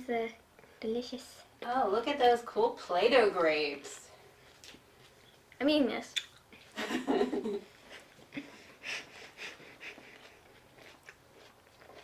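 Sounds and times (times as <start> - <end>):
breathy puffs and sniffs: 7.8 - 10.6.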